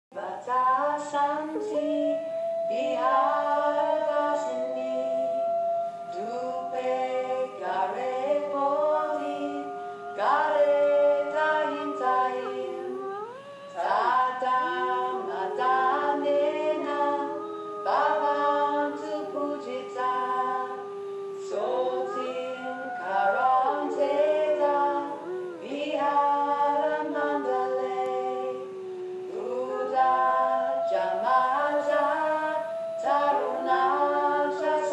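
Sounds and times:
a cappella group singing: 0:00.2 - 0:34.9.

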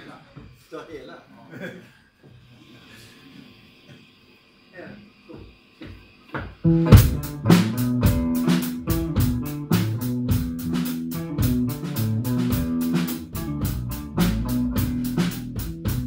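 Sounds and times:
drum kit beat: 0:06.5 - 0:16.0
electric bass: 0:06.6 - 0:16.0
electric guitar: 0:06.6 - 0:16.0.

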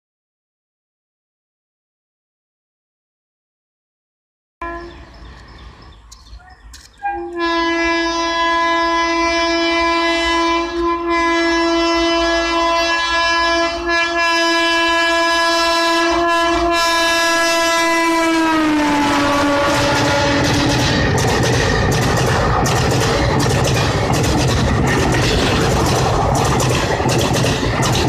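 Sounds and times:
train horn blast: 0:04.6 - 0:05.3, 0:07.0 - 0:21.2.

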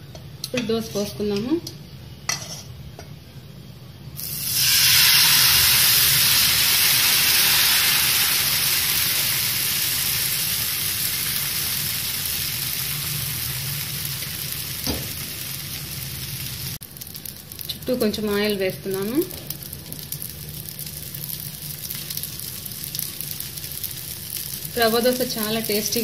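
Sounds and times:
batter sizzling on hot pan: 0:04.2 - 0:26.0.

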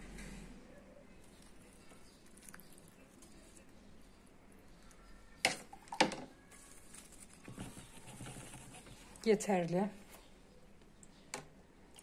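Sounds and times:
faint handling sounds: 0:01.1 - 0:11.5.

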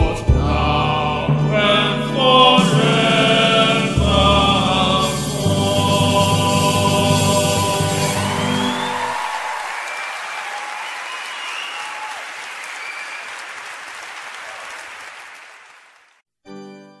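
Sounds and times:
hymn singing: 0:00.0 - 0:10.8
audience applauding: 0:07.6 - 0:16.2.

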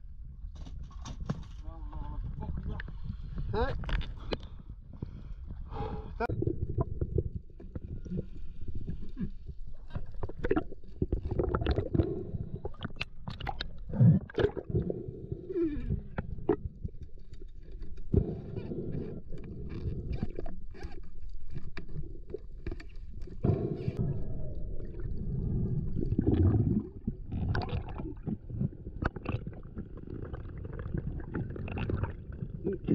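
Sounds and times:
low water rumble: 0:00.0 - 0:32.9
sharp clicks and knocks underwater: 0:00.5 - 0:05.6, 0:06.3 - 0:14.8, 0:19.0 - 0:24.0, 0:26.0 - 0:32.7.

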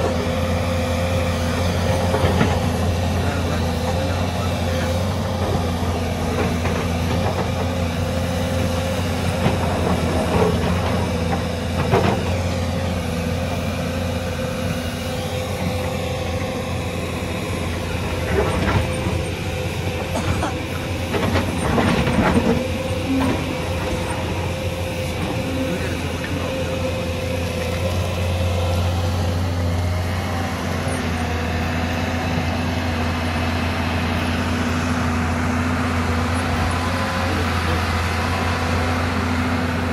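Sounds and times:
excavator diesel engine running: 0:00.0 - 0:39.9
steady whine: 0:00.9 - 0:32.0.

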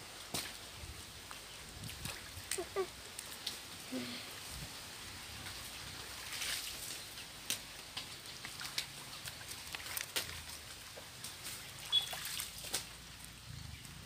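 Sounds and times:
wet clicks of mud: 0:00.2 - 0:00.6, 0:01.3 - 0:03.7, 0:06.3 - 0:14.0
muddy water sloshing and splashing: 0:00.2 - 0:03.8, 0:04.5 - 0:14.0
short high chirp: 0:11.9 - 0:12.2.

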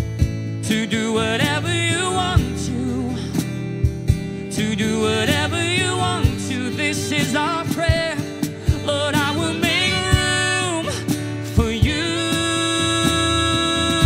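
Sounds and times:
strummed acoustic guitar: 0:00.0 - 0:14.0
woman singing: 0:08.9 - 0:14.0.

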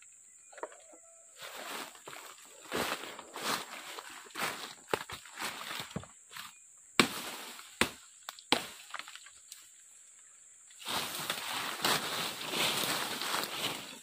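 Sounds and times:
leafy stems rustling: 0:01.4 - 0:09.8, 0:10.6 - 0:14.0
machete chopping brush: 0:04.9 - 0:09.2.

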